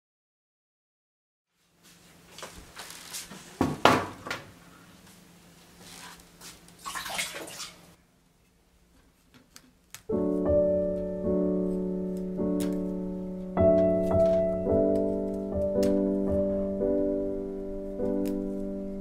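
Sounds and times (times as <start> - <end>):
soft piano music: 10.1 - 19.0.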